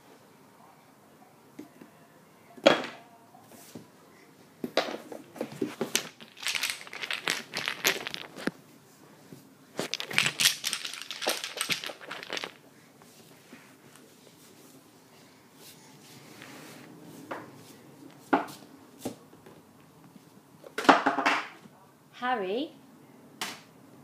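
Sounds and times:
toy blocks clattering in a box: 5.3s - 8.5s, 9.8s - 12.6s.

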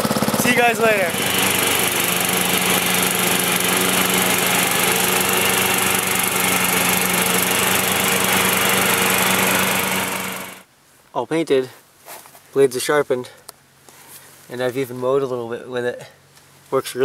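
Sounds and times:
riding lawn mower engine running: 0.0s - 10.6s.

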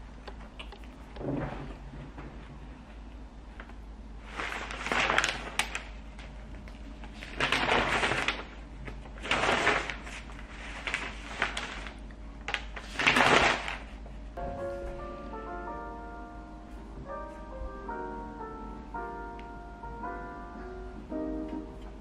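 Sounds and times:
newspaper pages rustling: 3.6s - 14.0s.

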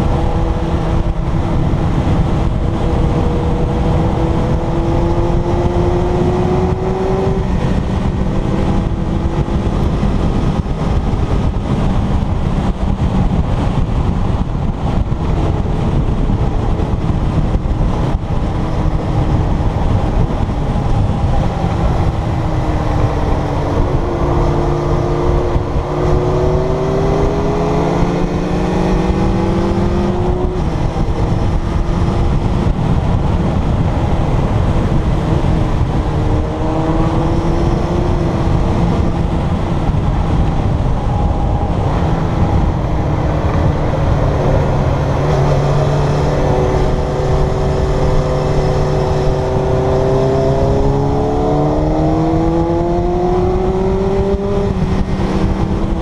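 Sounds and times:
motorcycle engine accelerating: 0.0s - 56.0s
wind noise on microphone: 0.0s - 56.0s.

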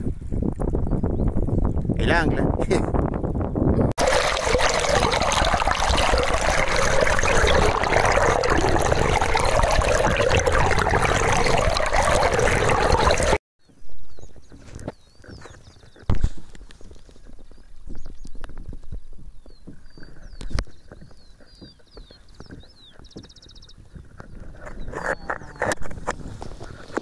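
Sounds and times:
water rushing along boat hull: 4.0s - 13.4s.

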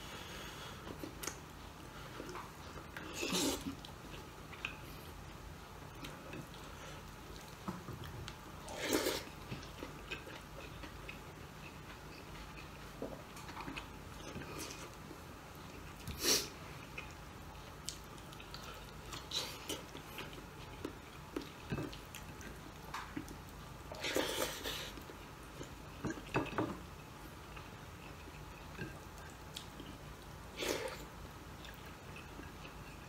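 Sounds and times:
chewing and lip smacking: 1.0s - 26.4s, 27.4s - 30.0s.

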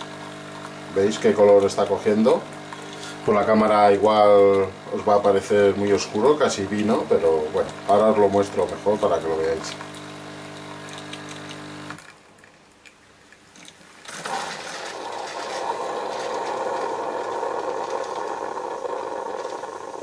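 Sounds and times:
pump humming: 0.0s - 12.4s, 14.0s - 20.0s
brew rushing into glass: 14.0s - 20.0s.

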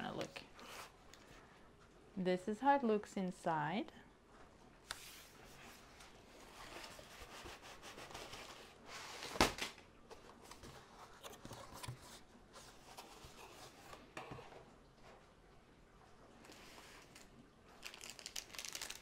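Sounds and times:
cardboard box and plastic rustling: 5.1s - 15.2s, 16.5s - 19.0s.

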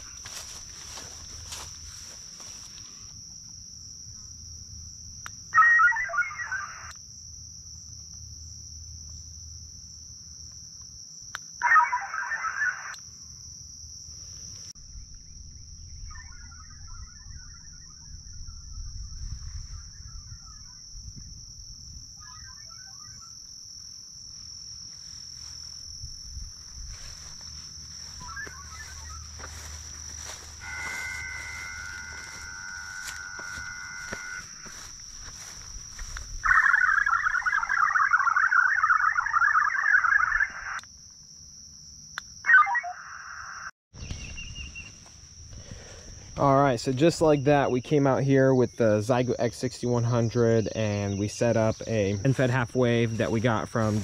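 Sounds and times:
high insect buzz: 0.0s - 48.4s
radio data tones: 5.6s - 6.9s, 11.6s - 13.0s, 16.0s - 21.0s, 22.2s - 23.4s, 26.9s - 40.8s, 42.5s - 43.7s
steady tones: 27.3s - 37.4s.

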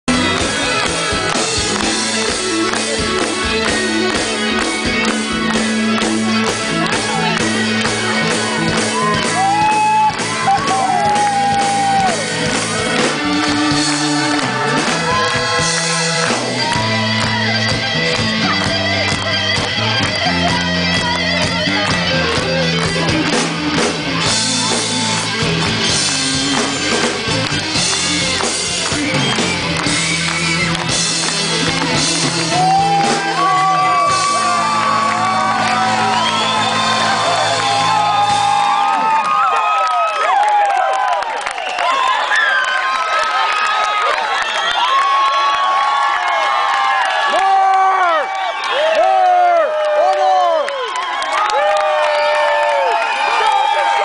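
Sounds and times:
live rock band through pa: 0.1s - 41.8s.

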